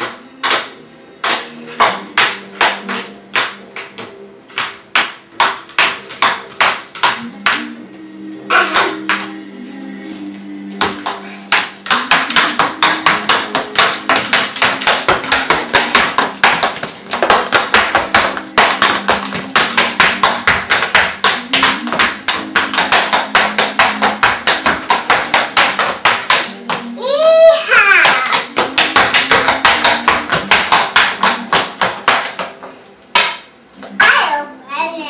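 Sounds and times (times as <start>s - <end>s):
recorded galloping hoofbeats: 10.8s - 27.0s, 27.9s - 33.3s.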